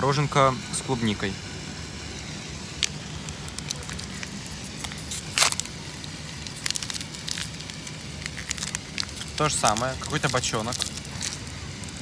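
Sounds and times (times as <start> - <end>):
plastic wrapper crinkling: 2.8 - 12.0.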